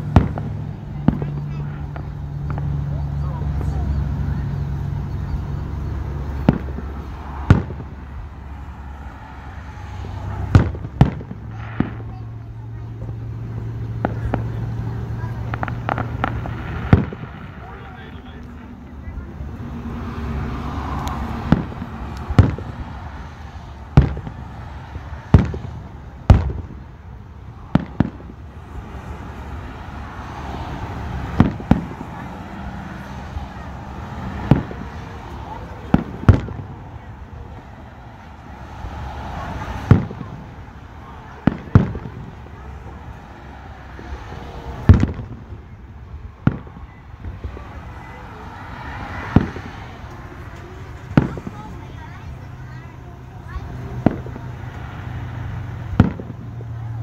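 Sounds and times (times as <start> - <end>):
firework shells bursting: 0.0 - 4.2, 6.0 - 18.6, 20.0 - 30.1, 30.7 - 37.1, 44.0 - 52.0.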